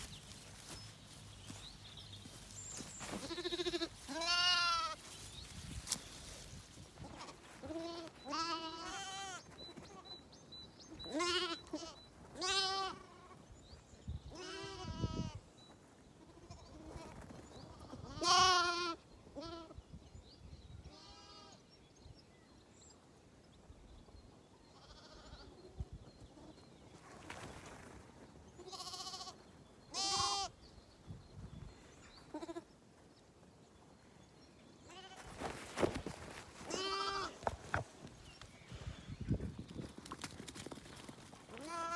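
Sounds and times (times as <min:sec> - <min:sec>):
lambs bleating: 0:03.0 - 0:05.0, 0:07.0 - 0:09.4, 0:11.1 - 0:13.4, 0:14.3 - 0:15.4, 0:17.7 - 0:19.7, 0:24.8 - 0:25.4, 0:28.6 - 0:30.6, 0:32.3 - 0:32.7, 0:36.7 - 0:37.4, 0:41.6 - 0:41.9.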